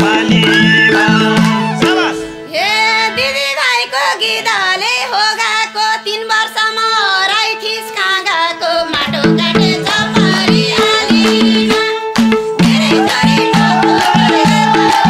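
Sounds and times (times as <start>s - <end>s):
person singing: 0.0s - 6.4s, 12.6s - 15.0s
folk music instrumental: 0.0s - 15.0s.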